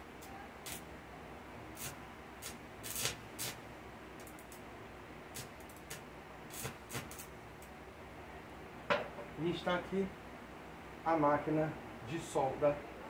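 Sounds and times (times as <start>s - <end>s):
electric arc crackling: 0.0s - 0.9s, 1.7s - 4.6s, 5.3s - 7.7s.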